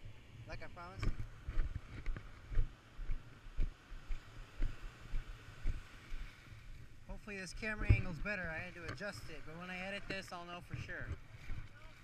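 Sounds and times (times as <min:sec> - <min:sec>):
surf hiss: 0:03.8 - 0:12.0
muffled camera knocks: 0:07.8 - 0:08.2.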